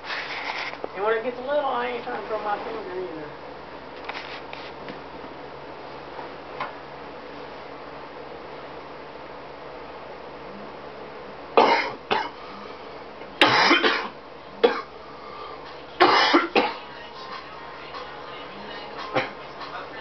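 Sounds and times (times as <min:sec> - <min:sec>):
person coughing: 0:11.6 - 0:12.4, 0:13.4 - 0:14.9, 0:16.0 - 0:16.8.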